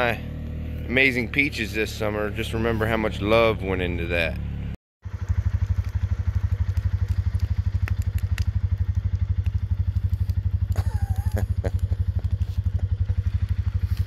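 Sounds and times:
firewood popping: 5.1s - 14.0s
rapid low throbbing: 5.1s - 14.0s.

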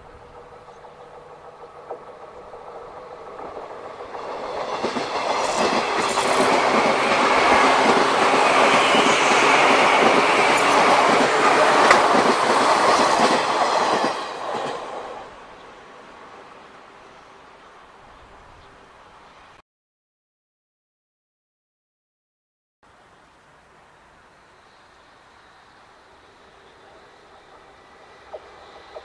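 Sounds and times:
train wheels clattering on rails: 0.1s - 15.2s, 27.3s - 29.0s.

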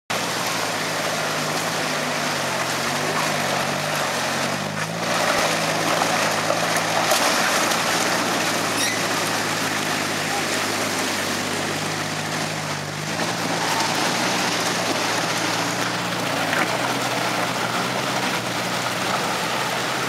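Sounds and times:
engine revving in mud: 0.1s - 20.0s.

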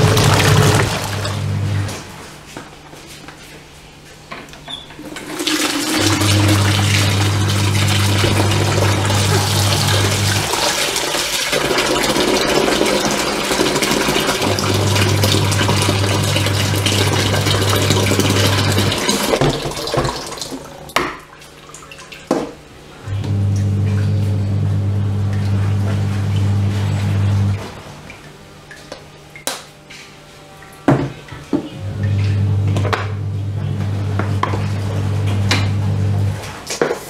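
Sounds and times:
tap water splashing into pot: 17.2s - 22.6s
low hum: 23.0s - 27.7s, 31.8s - 36.4s.

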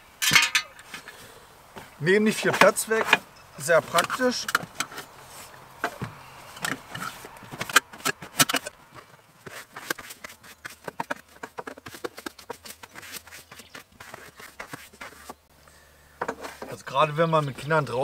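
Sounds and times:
brush sweeping car footwell: 2.3s - 15.4s.

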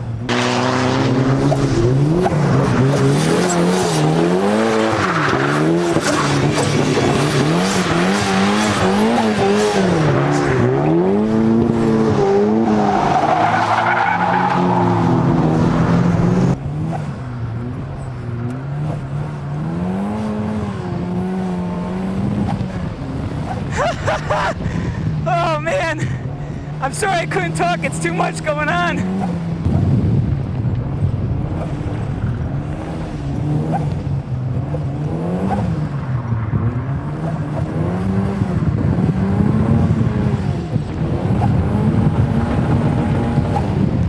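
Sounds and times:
car engine revving: 0.0s - 44.0s
tires squealing: 0.3s - 20.8s.

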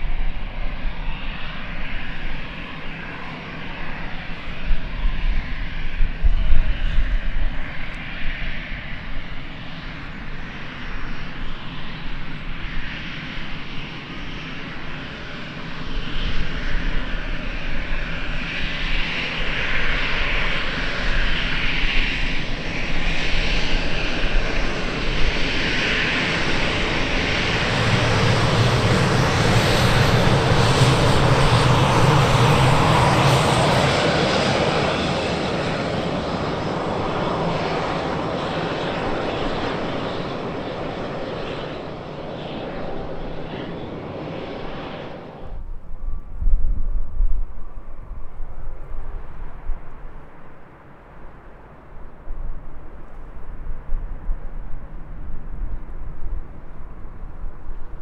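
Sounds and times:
jet engines whining: 0.0s - 46.4s.

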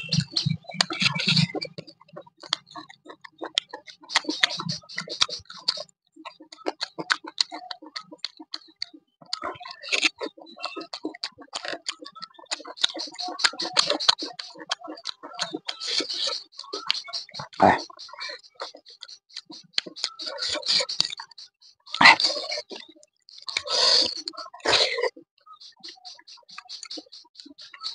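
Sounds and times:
person chewing and lip-smacking: 2.4s - 17.6s.

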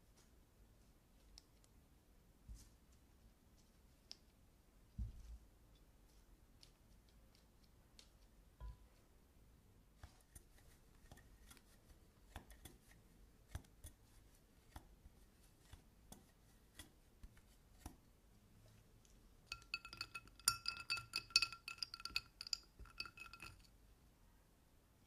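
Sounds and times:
rapid glassy clinks: 19.5s - 23.7s.

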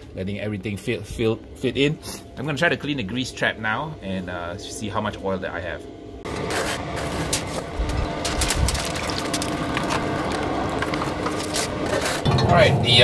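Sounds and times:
steady low hum: 0.0s - 13.0s
metal scraping and knocking: 6.3s - 12.7s.

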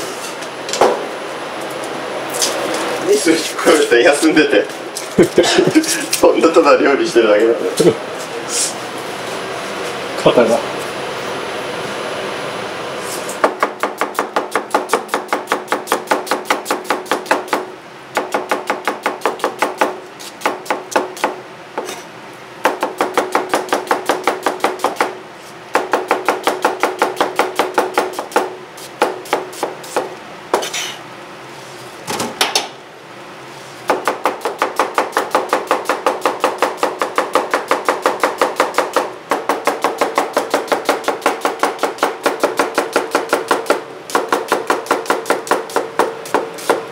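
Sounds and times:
steady hum: 0.0s - 46.9s
knife chopping on cutting board: 13.4s - 25.2s, 25.8s - 31.0s, 33.9s - 46.8s.

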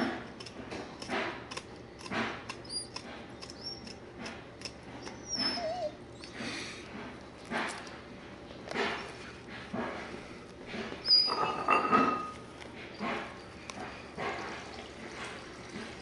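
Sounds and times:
dog whining: 2.6s - 4.0s, 5.0s - 6.6s, 11.0s - 12.3s
dog yelping: 5.0s - 6.4s, 11.0s - 11.7s.

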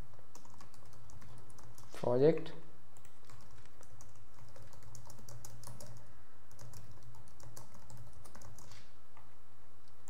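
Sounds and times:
steady low hum: 0.0s - 10.0s
keyboard typing clicks: 0.3s - 1.9s, 3.0s - 8.7s.

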